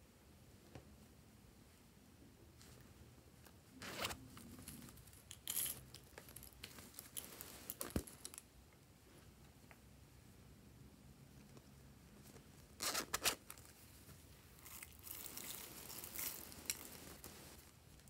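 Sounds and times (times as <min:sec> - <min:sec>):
plastic sequins crinkling and clicking: 0:04.4 - 0:08.4, 0:14.6 - 0:17.4
plush pouch rustling: 0:14.6 - 0:17.6.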